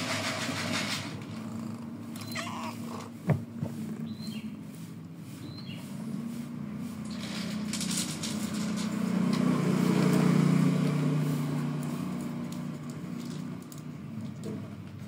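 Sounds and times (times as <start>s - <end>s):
vehicle engine hum: 0.0s - 15.0s.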